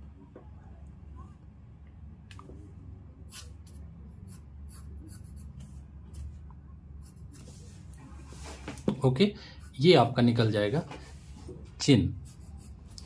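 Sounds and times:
low steady hum: 0:00.0 - 0:13.0
pencil scratching on paper: 0:03.3 - 0:06.4, 0:07.0 - 0:07.9, 0:12.2 - 0:13.0.

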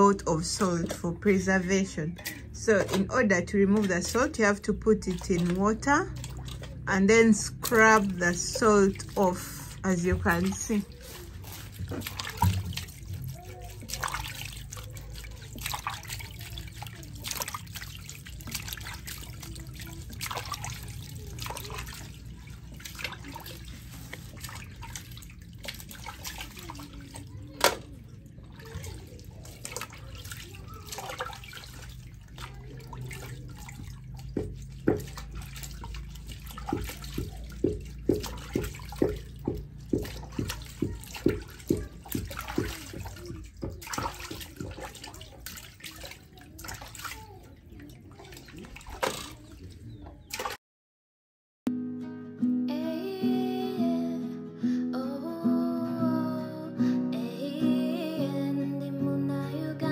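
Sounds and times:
hands scrubbing fish in water: 0:00.0 - 0:50.6
water splashing and dripping: 0:00.0 - 0:50.6
wet slaps: 0:27.5 - 0:27.9.

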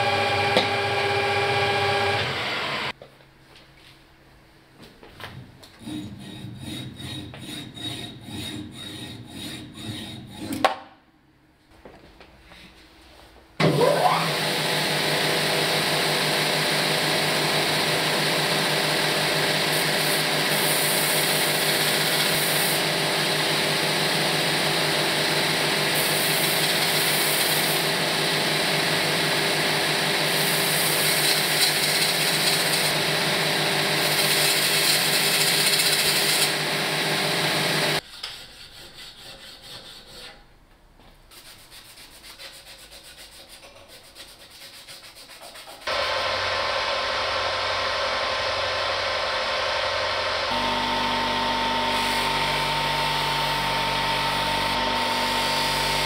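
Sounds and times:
belt grinder whining: 0:00.0 - 0:03.0, 0:13.7 - 0:38.0, 0:45.9 - 0:56.0
hacksaw cutting metal rod: 0:05.8 - 0:10.8, 0:38.0 - 0:40.4.

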